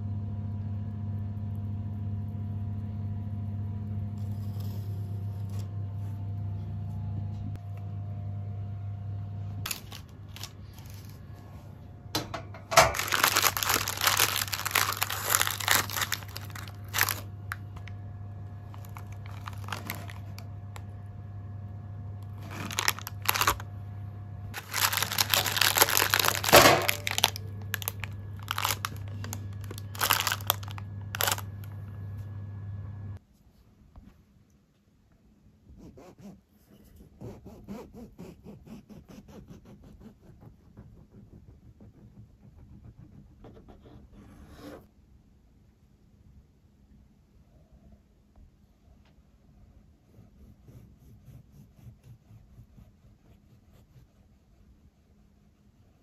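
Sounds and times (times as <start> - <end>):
oven humming: 0.0 - 33.2
baking paper crinkling: 9.7 - 11.4, 12.8 - 17.8, 18.6 - 20.8, 22.2 - 23.7, 24.6 - 31.7.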